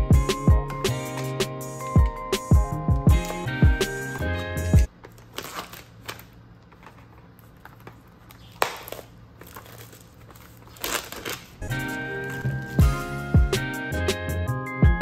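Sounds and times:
background music: 0.0s - 4.9s, 11.6s - 15.0s
plastic packaging crinkling: 4.9s - 12.8s.

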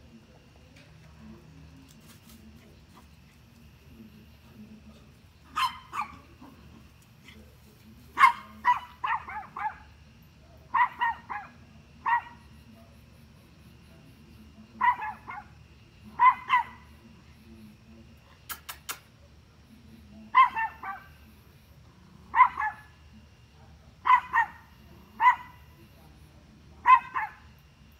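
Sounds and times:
small dog barking: 5.4s - 6.9s, 8.1s - 10.0s, 10.7s - 12.6s, 14.8s - 17.0s, 20.3s - 21.2s, 22.3s - 23.0s, 24.0s - 25.7s, 26.8s - 27.6s.

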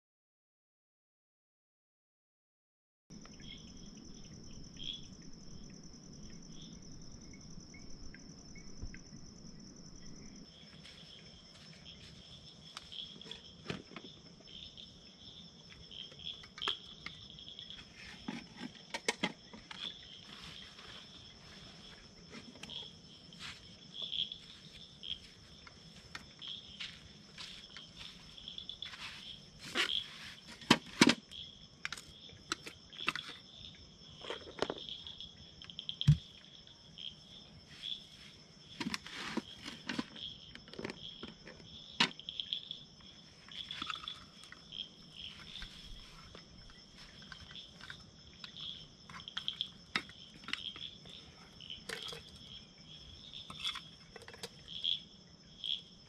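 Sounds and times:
insects chirring: 3.1s - 56.0s
camp gear clicks and knocks: 10.6s - 14.5s, 15.7s - 20.3s, 28.7s - 33.5s, 34.1s - 35.0s, 38.7s - 42.3s, 43.5s - 52.6s, 53.4s - 54.8s.

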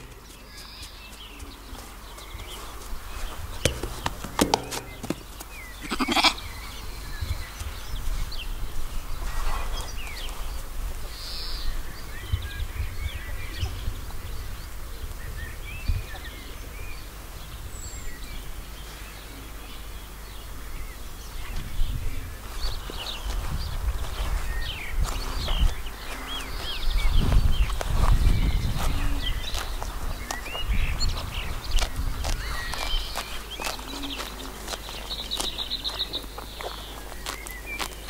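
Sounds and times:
small birds chirping: 0.0s - 38.0s
sheep bleating: 5.8s - 6.4s.

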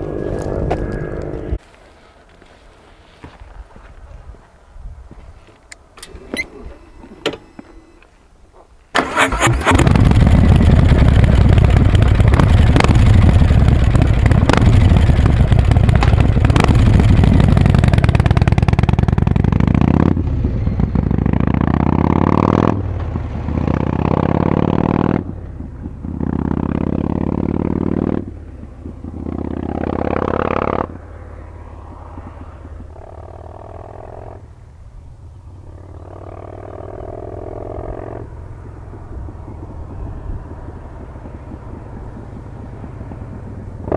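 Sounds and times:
motorcycle engine upshifting: 9.0s - 43.9s.

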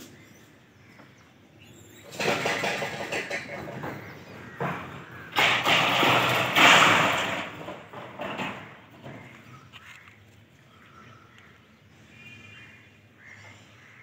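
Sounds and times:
rattling thumps on a tin roof: 2.0s - 9.6s.

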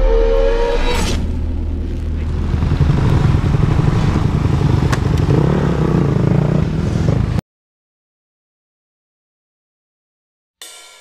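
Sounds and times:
motocross bike engines revving: 1.9s - 7.4s.

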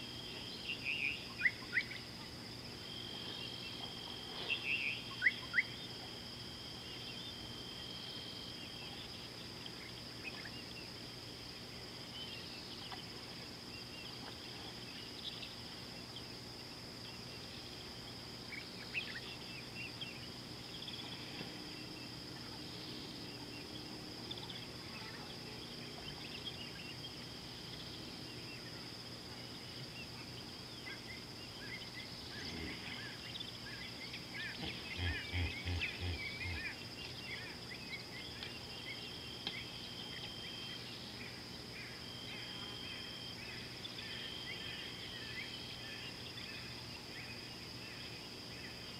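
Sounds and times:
high-pitched insect drone: 0.0s - 48.9s.

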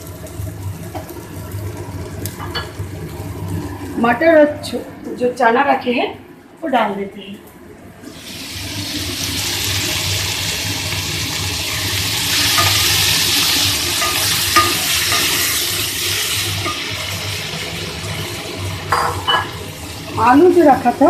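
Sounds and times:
chickpeas sizzling in oil: 0.0s - 4.1s, 8.1s - 21.0s
spatula tapping pan: 13.9s - 15.4s.

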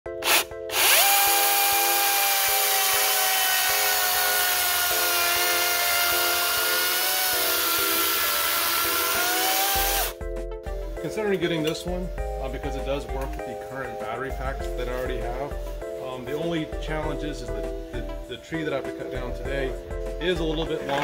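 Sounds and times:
chain cutting through wood: 0.2s - 10.1s
electric chainsaw motor whine: 0.2s - 10.2s.

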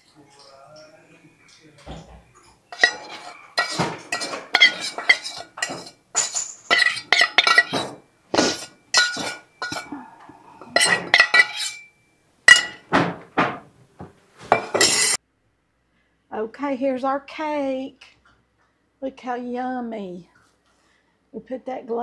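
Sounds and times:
dishes and utensils clinking: 0.0s - 13.6s, 14.4s - 15.2s.

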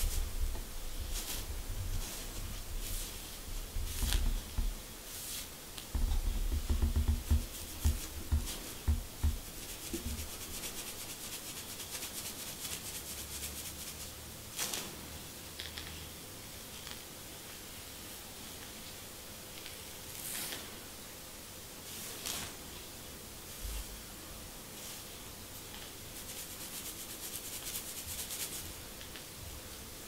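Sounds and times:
comb scratching through hair: 0.0s - 0.3s, 1.0s - 14.9s, 19.6s - 20.7s, 21.9s - 22.8s, 25.7s - 29.2s
dull low thumps: 3.6s - 4.8s, 6.0s - 9.5s.

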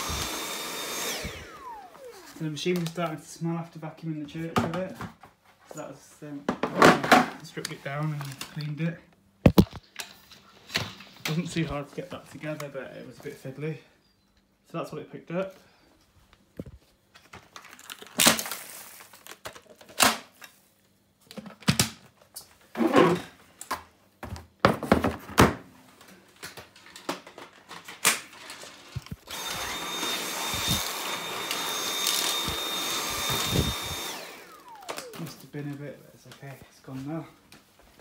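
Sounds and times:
cordless vacuum running: 0.0s - 3.0s, 29.0s - 35.8s.

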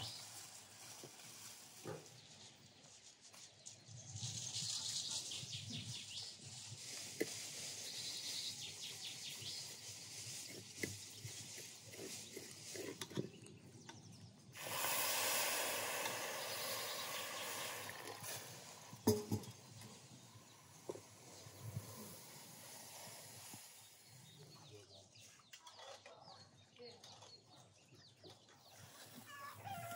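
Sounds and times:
birds chirping faintly: 7.2s - 29.9s
water pouring into a pot: 14.6s - 19.6s.

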